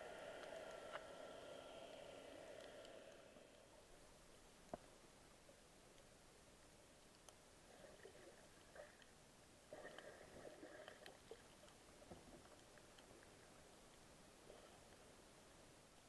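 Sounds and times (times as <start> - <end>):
faint hum: 0.0 - 16.0
faint clicks underwater: 0.1 - 3.7, 4.6 - 4.9, 7.0 - 9.2, 9.8 - 15.0.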